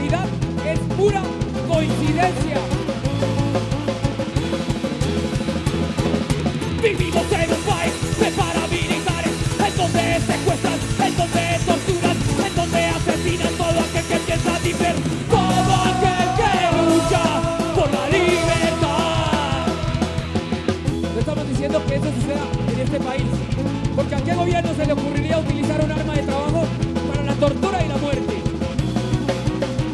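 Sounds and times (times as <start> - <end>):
punk band playing: 0.0 - 29.9
person yelling vocals: 6.8 - 20.4
voices singing long held notes: 14.7 - 20.6.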